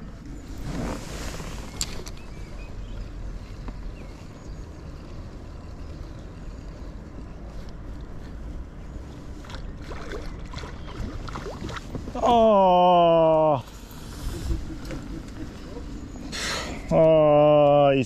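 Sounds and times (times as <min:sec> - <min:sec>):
water around kayak: 0:00.0 - 0:17.8
wind on microphone: 0:14.0 - 0:15.9.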